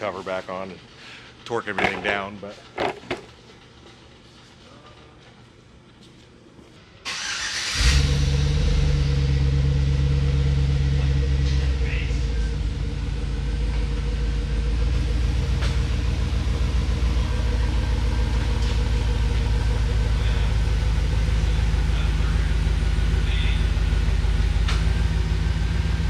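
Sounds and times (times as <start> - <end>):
truck engine starting and idling: 7.0 - 26.0.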